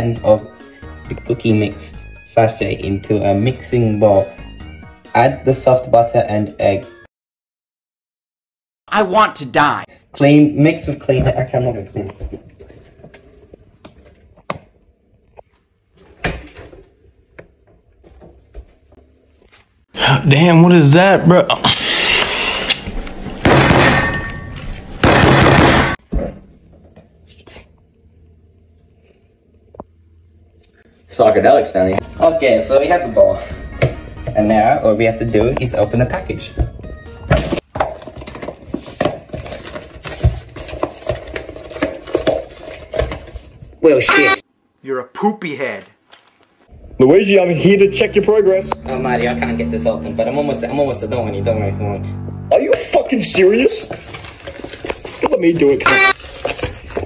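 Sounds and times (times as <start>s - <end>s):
objects knocking and clattering: 23.2s - 27.1s, 37.3s - 43.7s
objects rattling: 37.4s - 43.6s
packet crinkling and rustling: 53.8s - 57.0s.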